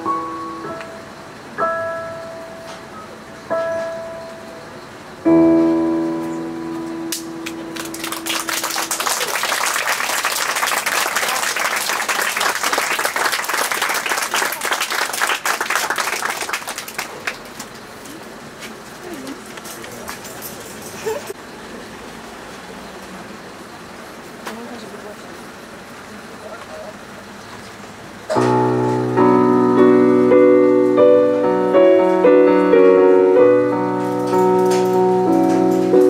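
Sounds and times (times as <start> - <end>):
piano notes: 0.0 - 11.3, 28.3 - 36.0
audience applause: 7.8 - 17.8.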